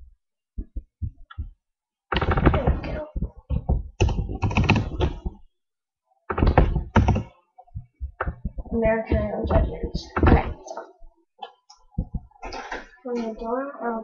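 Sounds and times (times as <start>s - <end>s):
typing on computer keyboard: 2.1s - 5.4s, 6.3s - 7.3s.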